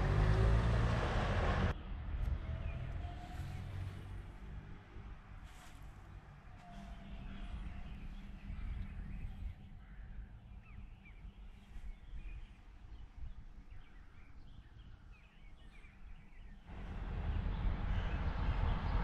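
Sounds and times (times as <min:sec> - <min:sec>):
low wind rumble: 0:00.0 - 0:19.0
steady rushing noise: 0:16.7 - 0:19.0.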